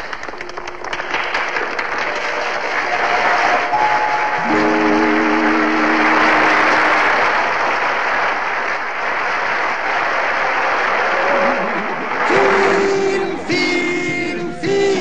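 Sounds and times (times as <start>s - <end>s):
audience applauding: 0.0s - 15.0s
held musical chord: 3.0s - 7.3s.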